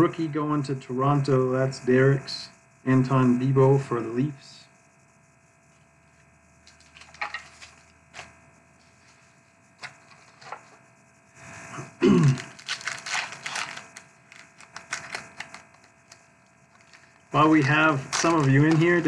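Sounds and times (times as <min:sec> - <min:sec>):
card handling clicks and rustling: 0:06.7 - 0:08.3, 0:12.2 - 0:16.2, 0:16.8 - 0:19.0
packaging crinkling: 0:06.7 - 0:08.3, 0:12.2 - 0:19.0.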